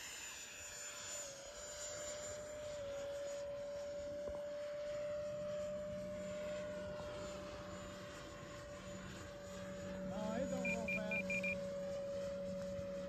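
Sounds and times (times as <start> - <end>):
model jet ducted fan whine: 0.0 - 13.0.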